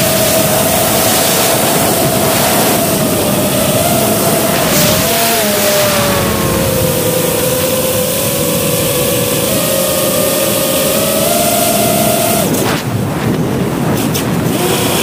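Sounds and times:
air rushing: 0.0s - 9.4s
drone motors whining: 0.0s - 12.9s.

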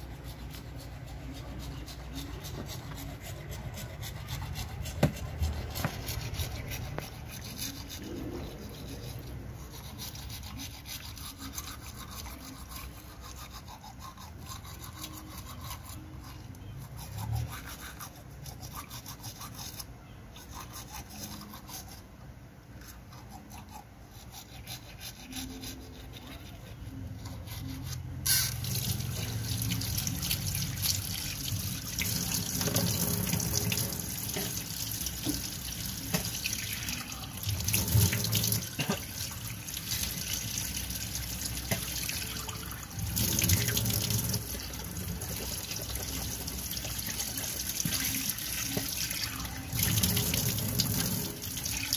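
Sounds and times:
toothbrush scrubbing teeth: 0.0s - 22.1s, 22.8s - 51.9s
water running into a steel sink: 28.6s - 51.9s.

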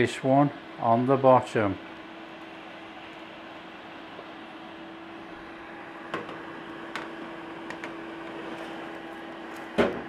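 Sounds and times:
oven fan humming: 0.0s - 10.0s.

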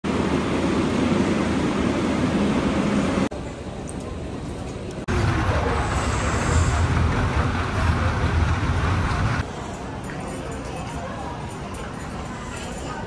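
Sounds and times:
faint hubbub of people: 3.3s - 13.0s
low rumble: 5.1s - 9.4s.

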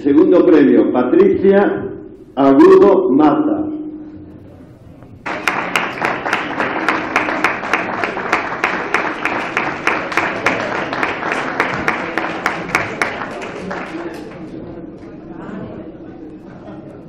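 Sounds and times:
crowd applauding: 5.2s - 14.7s.

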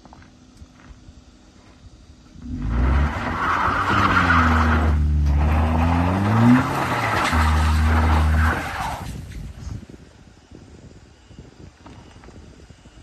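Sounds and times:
car engine revving hard: 2.4s - 9.0s
wheels spraying gravel: 2.4s - 9.6s.

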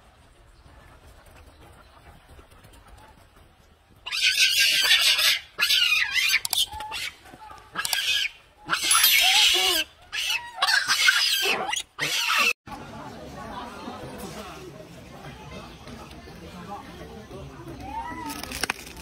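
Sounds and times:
monkeys screaming: 4.0s - 12.6s.

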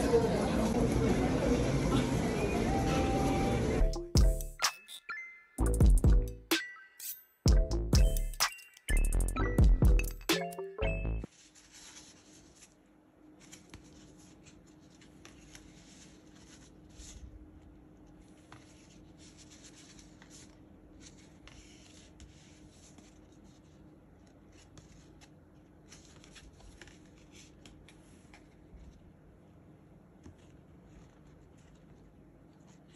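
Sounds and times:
soft handling rustles and clicks: 11.3s - 32.9s.

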